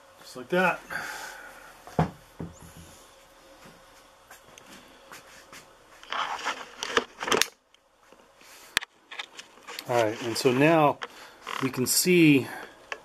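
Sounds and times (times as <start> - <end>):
scraping rustling and clicks: 6.0 - 7.6, 8.7 - 11.9.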